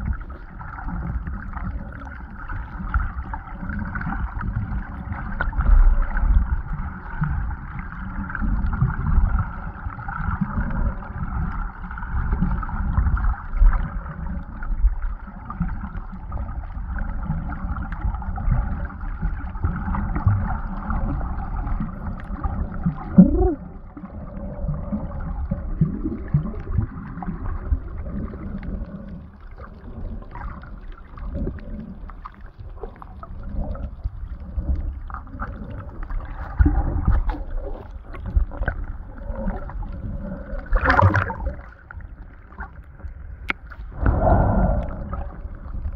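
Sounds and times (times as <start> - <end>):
underwater low rumble: 0.0 - 45.9
water sloshing: 29.6 - 45.9.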